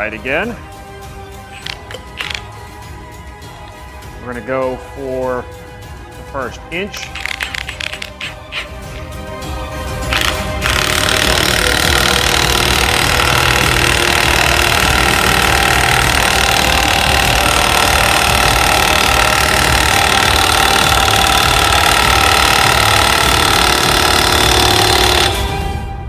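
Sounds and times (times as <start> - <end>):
impact wrench hammering: 1.6 - 2.5, 7.1 - 9.1, 10.1 - 25.6.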